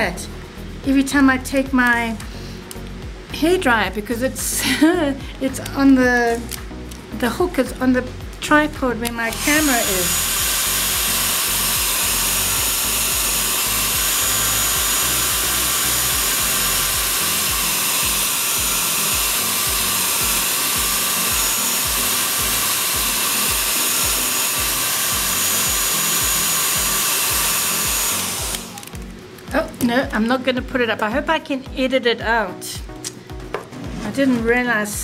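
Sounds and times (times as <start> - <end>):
hair dryer blowing: 9.0 - 29.1.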